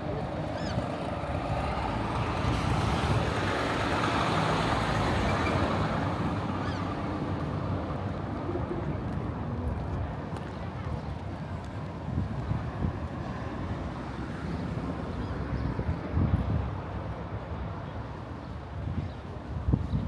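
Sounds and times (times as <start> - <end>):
vehicle passing by: 0.6 - 8.8.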